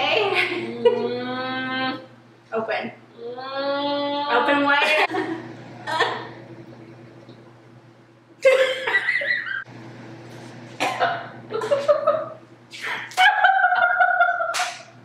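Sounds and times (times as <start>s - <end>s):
women laughing: 4.8s - 6.3s, 8.4s - 9.7s, 11.5s - 14.6s.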